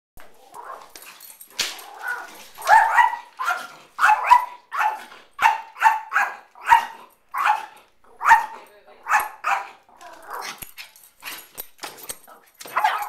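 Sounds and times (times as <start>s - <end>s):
small dog barking: 2.1s - 10.5s, 12.7s - 13.0s.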